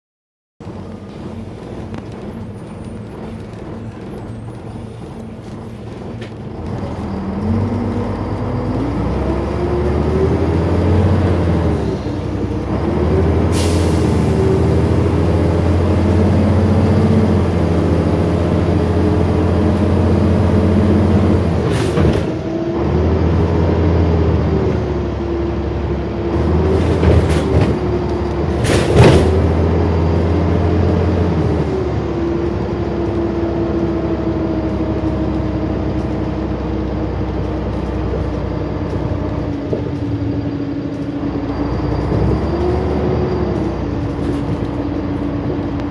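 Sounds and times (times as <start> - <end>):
bus engine accelerating: 0.6 - 45.9
air brake hisses: 13.5 - 14.2.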